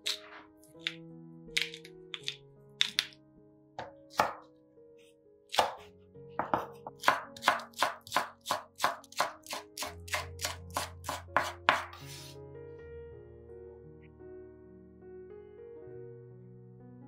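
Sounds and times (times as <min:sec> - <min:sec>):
background music: 0:00.0 - 0:17.0
knife chopping on wooden board: 0:03.8 - 0:04.4, 0:05.5 - 0:12.2.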